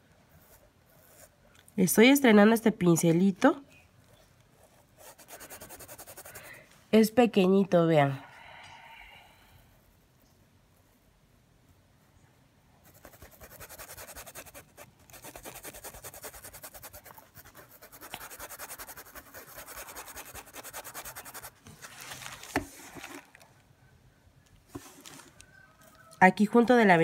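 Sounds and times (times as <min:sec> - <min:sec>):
paintbrush scrubbing on fabric: 0:05.0 - 0:06.4, 0:12.9 - 0:21.7.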